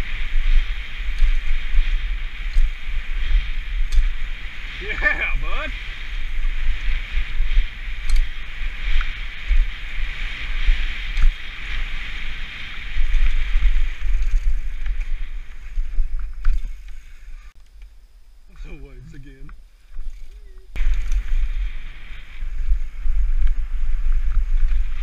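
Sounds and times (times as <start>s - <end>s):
wind buffeting microphone: 0.0s - 17.6s, 19.9s - 25.0s
bike clicks and rattles: 0.1s - 4.3s, 6.3s - 12.3s, 12.9s - 17.0s, 19.5s - 21.5s.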